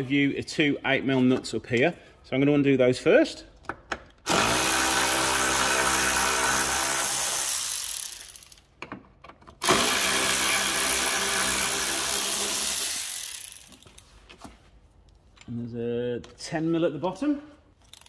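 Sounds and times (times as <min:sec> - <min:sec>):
power tool motor whine: 0:04.3 - 0:08.3, 0:09.6 - 0:13.7.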